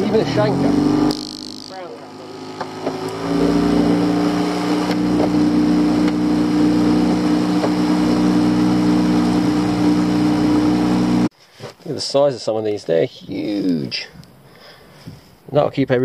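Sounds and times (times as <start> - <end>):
boat engine running: 0.0 - 11.3.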